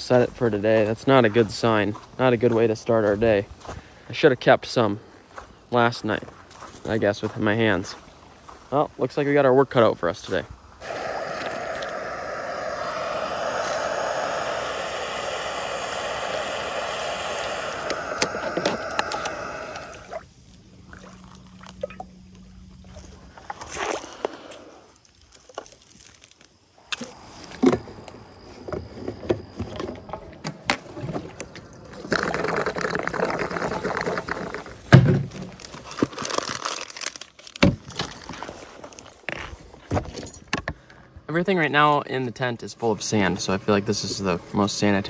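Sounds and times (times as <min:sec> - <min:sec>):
stove burner hissing: 0:10.8 - 0:20.2.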